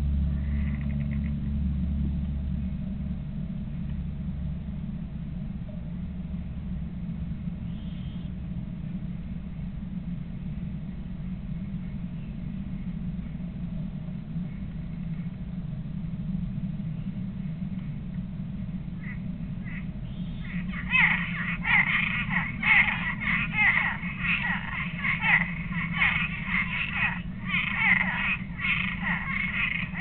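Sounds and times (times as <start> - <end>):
low rumble: 0.0 - 30.0
faint high chirp: 7.6 - 8.3.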